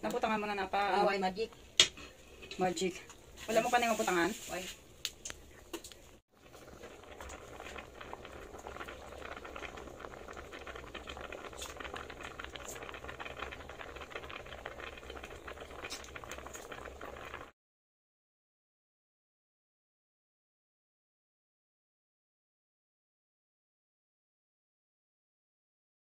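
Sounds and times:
soup boiling and bubbling: 0.0 - 17.6.

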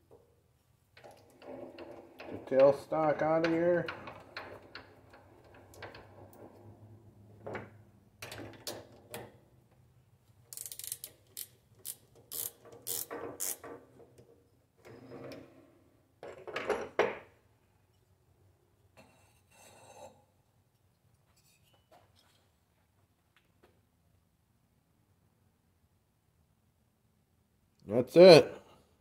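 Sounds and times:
metallic clicks and clanks: 1.0 - 6.6.

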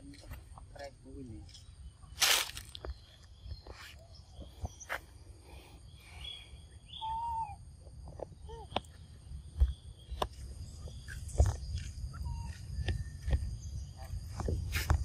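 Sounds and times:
high insect drone: 0.0 - 15.0.

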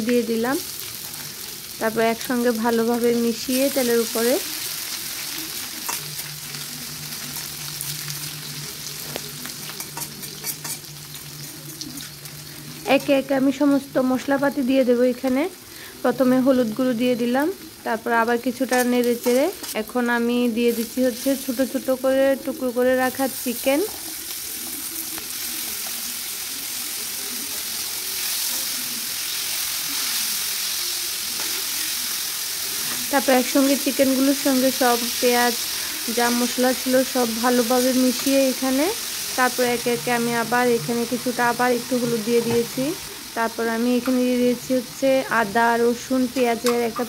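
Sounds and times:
onions sizzling in oil: 0.0 - 47.0
spatula scraping a pan: 9.7 - 13.2.

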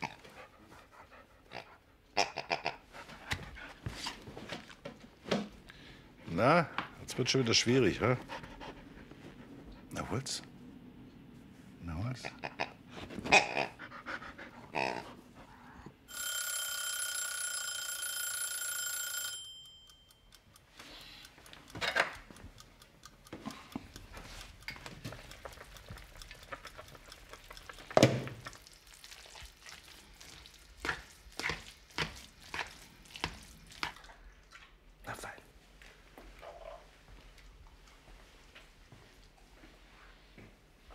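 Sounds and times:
bell ringing: 16.1 - 20.3.

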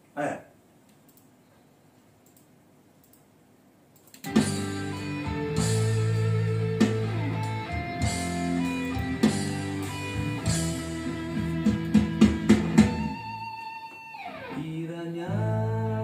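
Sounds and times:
guitar strumming chords: 4.3 - 16.0.

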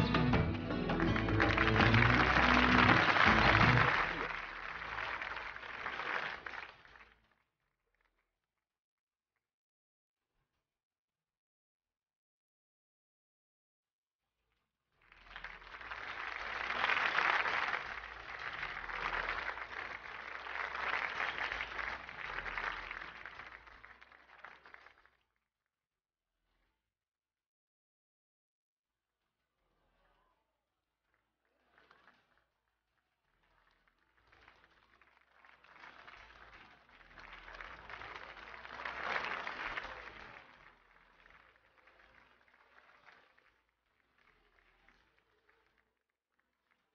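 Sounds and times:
audience applauding: 0.0 - 7.1, 15.1 - 25.0, 34.1 - 45.7.

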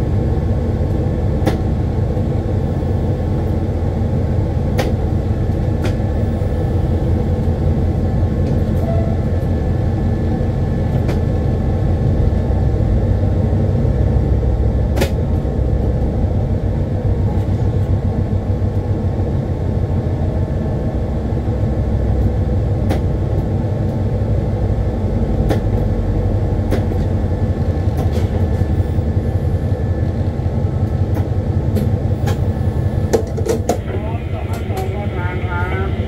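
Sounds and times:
locomotive engine rumbling: 0.0 - 36.0
sharp clicks and knocks: 4.8 - 5.0, 25.4 - 25.9, 33.1 - 33.8.

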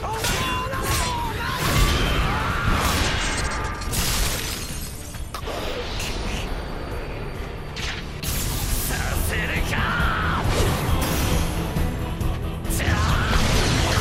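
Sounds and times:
background music: 0.0 - 14.0
blades shattering: 0.1 - 5.2.

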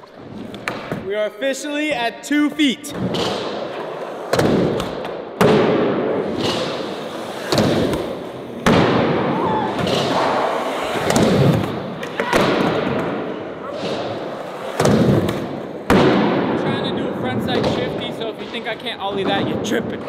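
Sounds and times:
skateboard decks slamming: 3.0 - 16.6
skateboard wheels rolling: 6.0 - 16.0.

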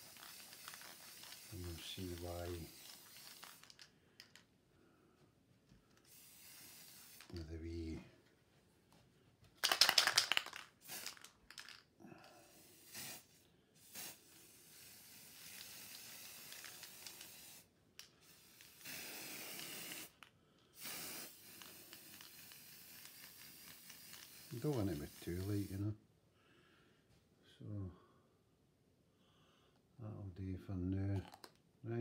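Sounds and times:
spray paint can hissing: 0.0 - 4.3, 6.1 - 7.6, 9.6 - 11.8, 12.6 - 25.8.

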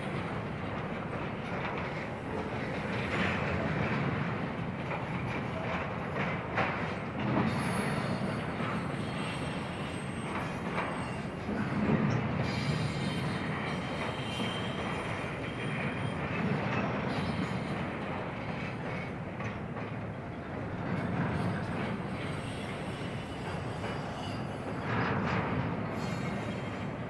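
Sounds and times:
train wheels rumbling on rails: 0.0 - 27.0
faint wheel squeal: 7.5 - 17.8, 21.1 - 25.0.

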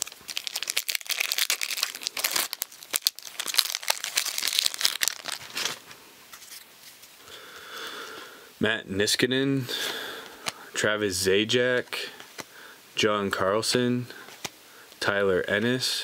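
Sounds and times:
card pack wrapper crinkling: 0.0 - 6.6.

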